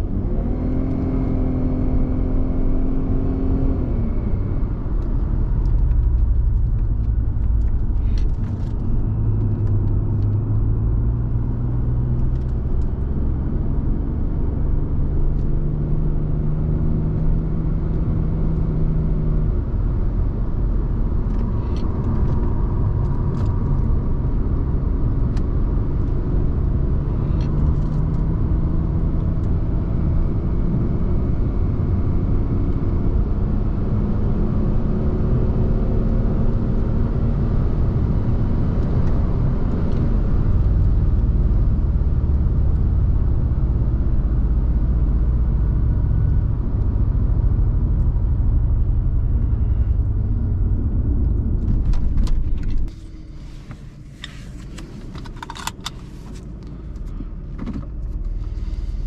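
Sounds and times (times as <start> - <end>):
car engine droning: 0.0 - 59.0
tyre and road rumble: 3.7 - 15.6, 38.0 - 59.0.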